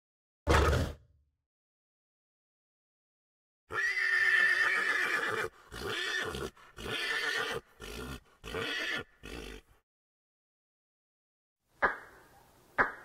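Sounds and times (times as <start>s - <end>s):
horse neighing: 3.7s - 9.7s.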